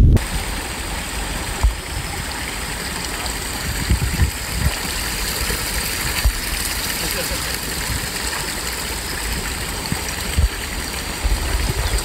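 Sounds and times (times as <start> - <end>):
wind blowing across microphone: 0.0 - 0.6, 3.4 - 6.6, 9.3 - 12.0.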